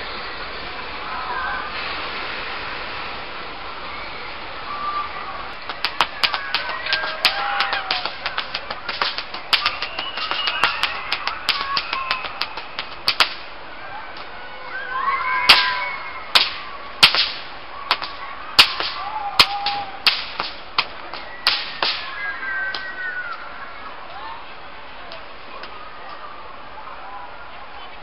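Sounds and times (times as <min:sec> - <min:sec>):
whip cracking: 0:05.7 - 0:13.5, 0:15.5 - 0:22.8.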